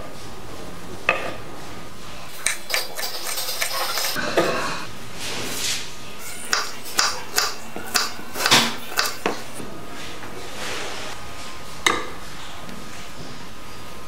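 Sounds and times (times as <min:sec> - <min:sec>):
knife tapping on cutting board: 0:06.5 - 0:09.4.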